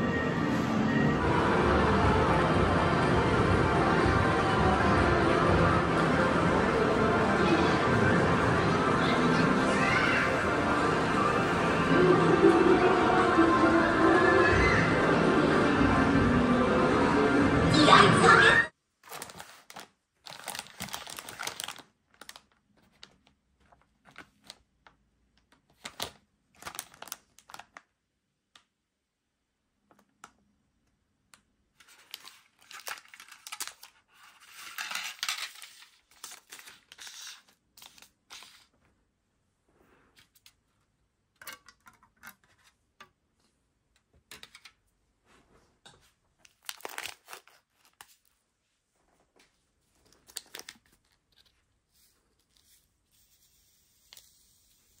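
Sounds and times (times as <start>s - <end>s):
plastic packaging crinkling and tearing: 19.0s - 24.6s, 25.7s - 27.9s, 31.8s - 38.7s, 46.4s - 48.4s, 50.0s - 51.6s.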